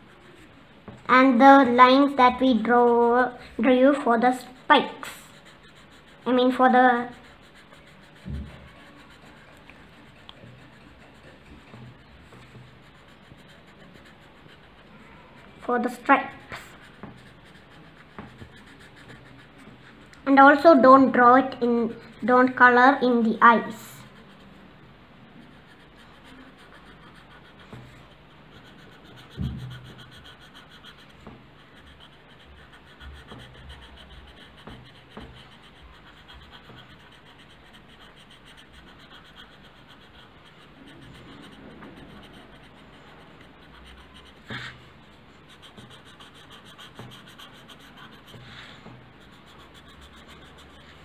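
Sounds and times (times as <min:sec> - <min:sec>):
pencil scratching on paper: 0:00.0 - 0:51.0.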